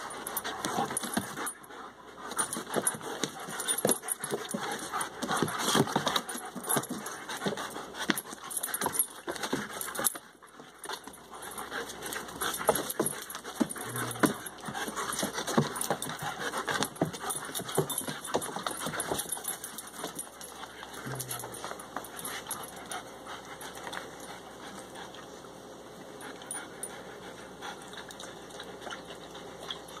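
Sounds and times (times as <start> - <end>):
dogs panting: 0.0 - 30.0
dogs scuffling: 2.2 - 23.0.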